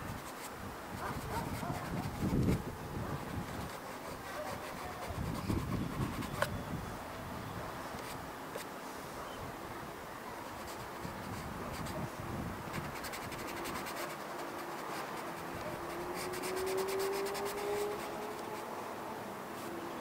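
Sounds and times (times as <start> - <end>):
fingertips rubbing pastel on paper: 0.0 - 2.6, 3.2 - 6.5, 10.5 - 12.0, 12.6 - 18.7.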